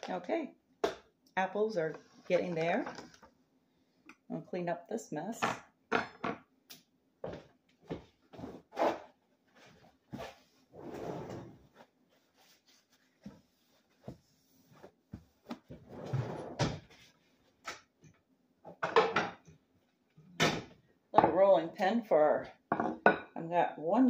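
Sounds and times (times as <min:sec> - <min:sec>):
longer noisy kitchen sounds: 0:04.8 - 0:23.6
drawers and cupboards knocking shut: 0:15.8 - 0:16.9.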